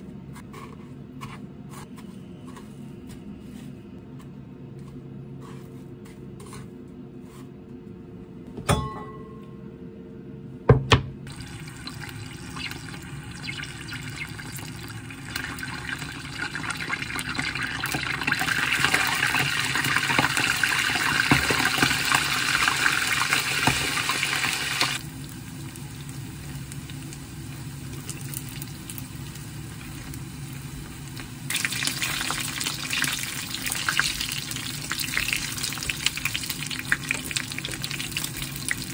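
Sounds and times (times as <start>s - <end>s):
food deep-frying in hot oil: 11.3s - 38.9s.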